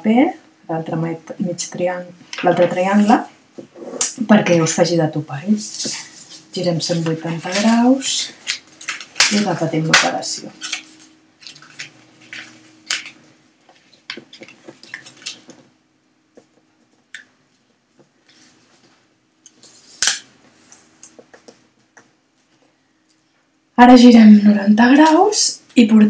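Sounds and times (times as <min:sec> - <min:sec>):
paper crinkling and rustling: 0:05.7 - 0:15.6.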